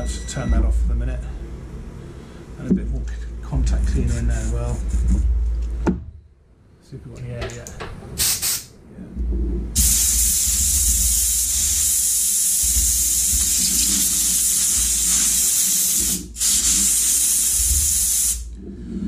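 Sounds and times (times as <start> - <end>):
compressed air hissing: 8.2 - 8.7, 9.8 - 18.5.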